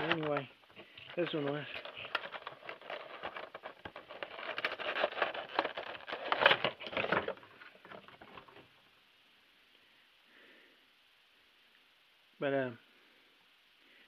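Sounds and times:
cardboard and plastic crinkling: 0.0s - 8.7s.

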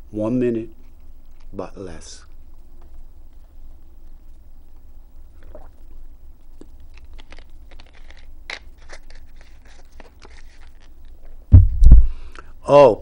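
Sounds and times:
low steady hum: 0.0s - 13.0s
plastic bottle crinkling: 6.5s - 11.4s.

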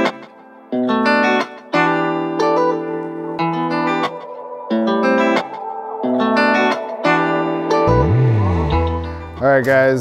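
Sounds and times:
plucked string chords: 0.8s - 9.4s.

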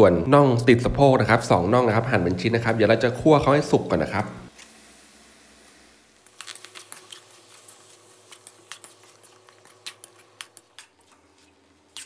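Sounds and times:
chicken frying in a wok: 2.6s - 12.0s.

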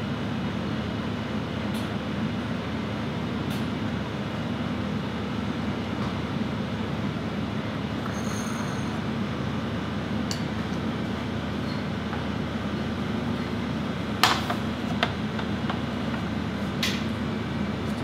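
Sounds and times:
kitchen machinery drone: 0.0s - 18.0s
high ringing clink: 8.0s - 9.0s.

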